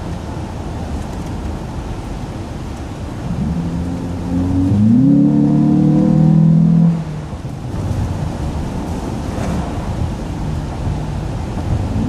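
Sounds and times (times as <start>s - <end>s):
road noise: 0.0s - 12.0s
car engine revving: 3.2s - 12.0s.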